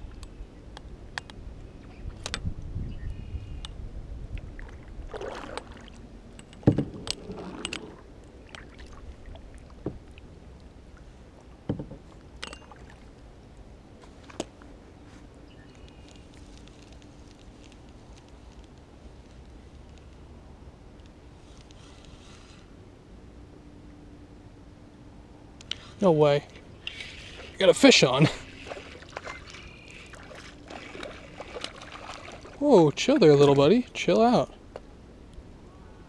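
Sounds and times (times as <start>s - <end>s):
water sloshing around kayak: 4.4s - 13.3s, 26.4s - 33.8s.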